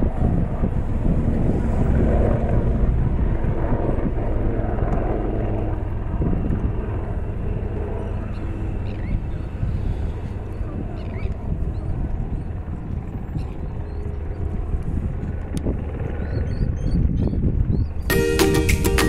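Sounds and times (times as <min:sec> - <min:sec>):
helicopter rotor and turbine drone: 0:00.0 - 0:18.1.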